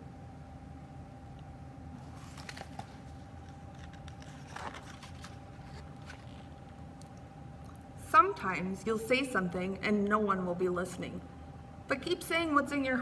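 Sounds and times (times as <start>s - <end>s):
faint room hum: 0.0s - 13.0s
book pages rustling: 2.0s - 7.2s.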